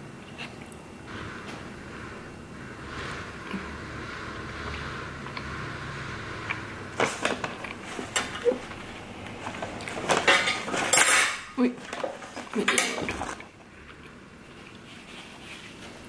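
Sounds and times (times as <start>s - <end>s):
cutlery and dishes clinking: 9.9s - 13.4s.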